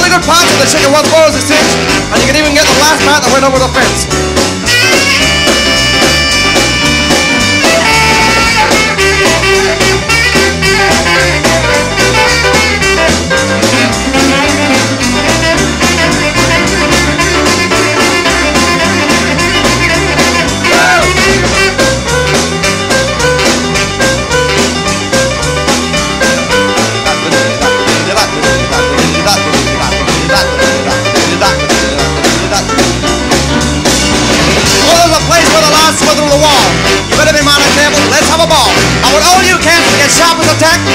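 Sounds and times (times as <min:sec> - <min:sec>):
rhythm and blues band playing: 0:00.0 - 0:40.9
saxophones holding long notes: 0:04.7 - 0:24.7.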